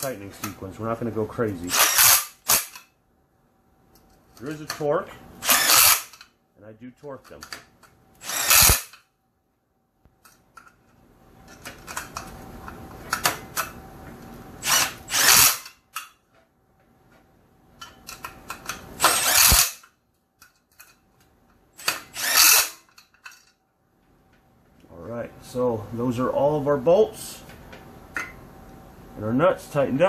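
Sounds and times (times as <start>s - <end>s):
cordless driver running bolts: 1.7s - 2.8s, 5.4s - 6.2s, 8.2s - 9.0s, 14.6s - 15.7s, 18.2s - 19.9s, 21.8s - 22.8s.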